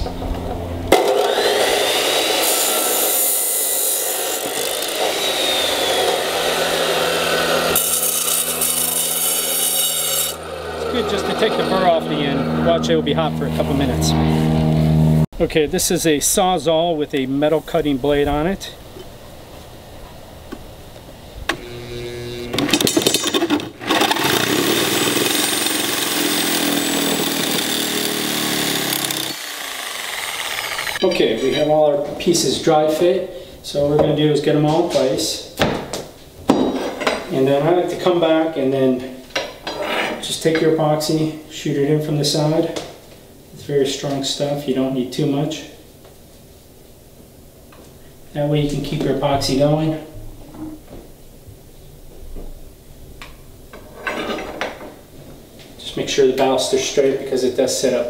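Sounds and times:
cutoff saw grinding metal: 0.9 - 15.2, 21.5 - 31.7.

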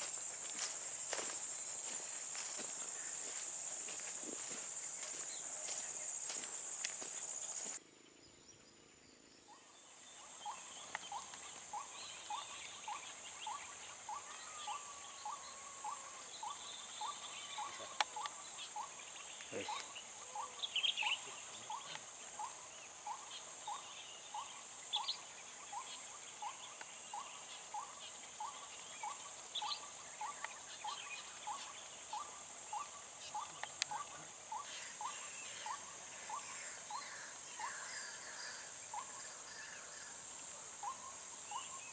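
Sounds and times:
high-pitched insect drone: 0.0 - 7.8.

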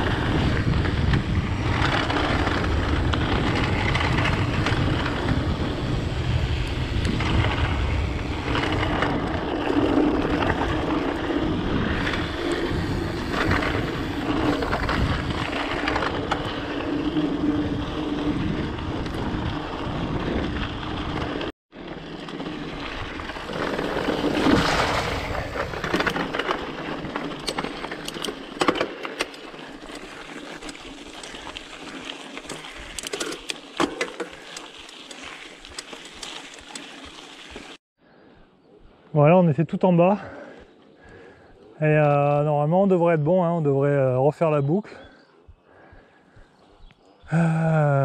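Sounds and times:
wind on microphone: 0.0 - 21.5
bike rattling over bumps: 0.0 - 37.8
rolling tyre noise: 0.0 - 37.8.

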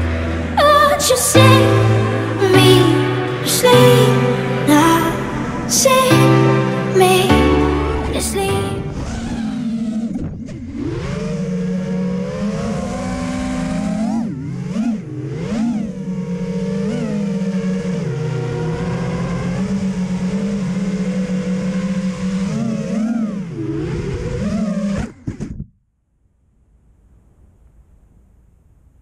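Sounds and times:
quadcopter motors whining: 9.0 - 25.2.

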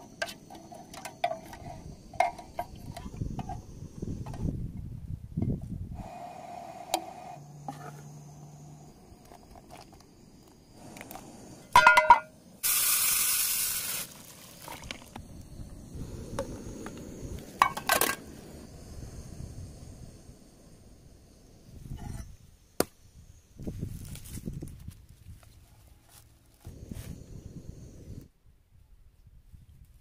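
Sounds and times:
metal tin clanking: 11.8 - 12.3.

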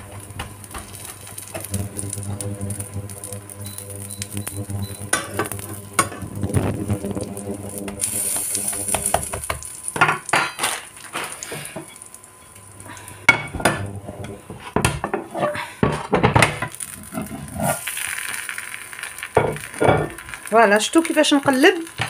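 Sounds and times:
food frying sizzle: 0.0 - 22.0
dish clattering against a pan: 14.8 - 16.7.

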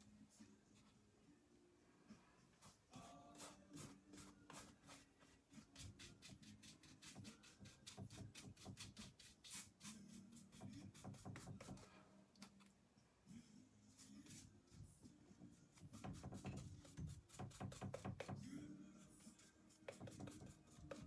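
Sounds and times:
paintbrush scrubbing on canvas: 2.6 - 11.9, 19.2 - 21.0.

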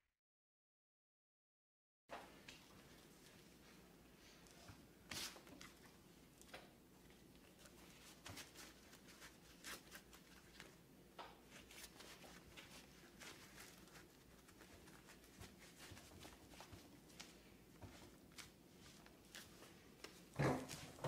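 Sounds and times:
cloth gloves rustling and scuffing: 5.1 - 6.0, 7.0 - 10.8, 11.4 - 21.0.

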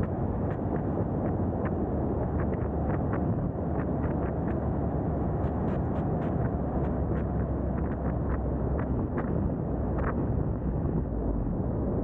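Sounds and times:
road and tyre noise: 0.0 - 12.0
wind rush on microphone: 0.0 - 12.0.

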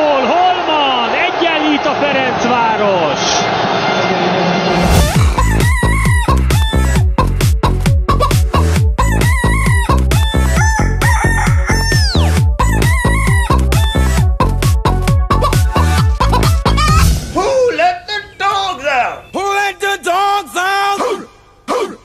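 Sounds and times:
rooster crowing and clucking: 10.6 - 12.3.

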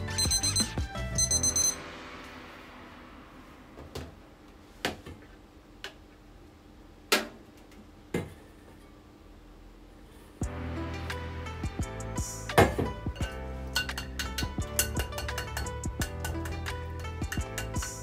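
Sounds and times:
kitchen timer alarm beeping: 0.1 - 1.8.

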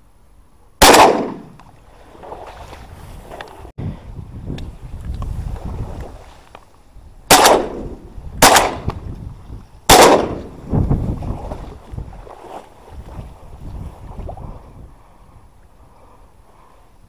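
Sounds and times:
shotgun shots: 0.8 - 1.6, 7.3 - 9.0, 9.9 - 10.6.

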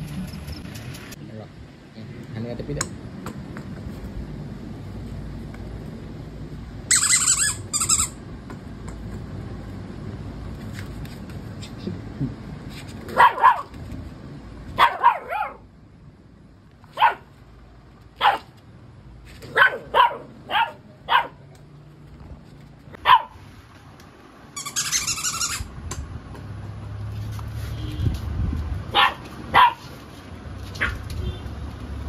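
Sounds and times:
puppy barking: 13.1 - 13.7, 14.8 - 15.6, 16.9 - 17.3, 18.2 - 18.5, 19.4 - 21.4, 23.0 - 23.4, 28.9 - 30.0, 30.8 - 31.0.

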